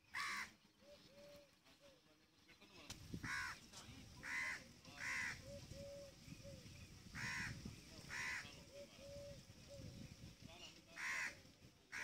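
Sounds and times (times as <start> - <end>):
crow cawing: 0.1 - 0.6, 3.3 - 3.6, 4.2 - 5.5, 7.2 - 8.6, 11.0 - 12.0.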